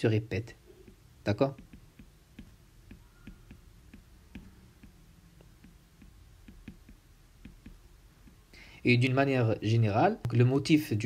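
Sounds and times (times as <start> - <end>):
stylus tapping on tablet screen: 0.7 - 8.5.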